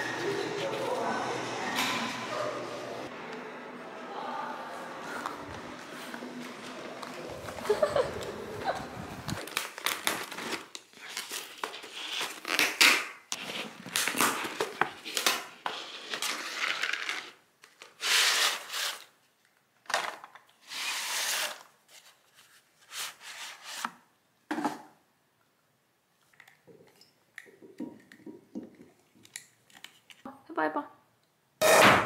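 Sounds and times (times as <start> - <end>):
paper packaging crinkling: 7.0 - 19.2.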